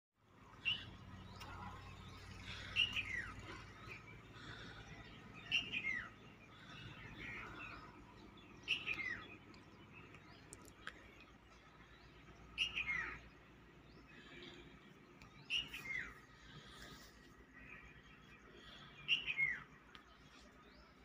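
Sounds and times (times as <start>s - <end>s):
soft bird chirps: 0.4s - 21.0s.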